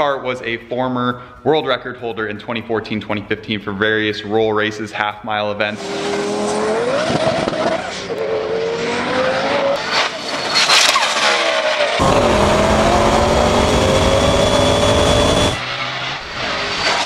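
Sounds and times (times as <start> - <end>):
car engine accelerating hard: 5.8 - 9.8, 12.0 - 17.0
exhaust crackle: 12.0 - 17.0.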